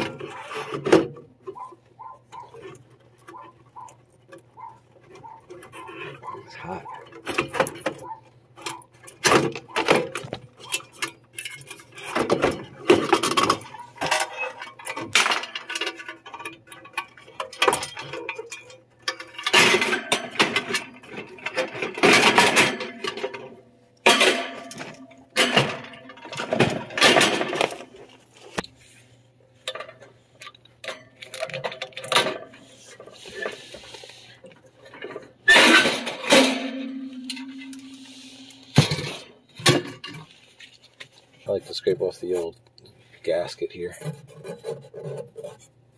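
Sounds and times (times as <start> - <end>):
metal and plastic parts clattering: 0.0 - 28.8, 29.6 - 41.2.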